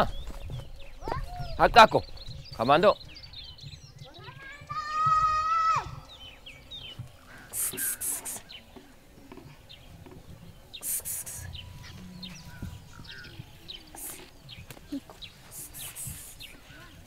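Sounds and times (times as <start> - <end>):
bird chirps: 0.0 - 17.0
hissing rustles: 6.3 - 17.0.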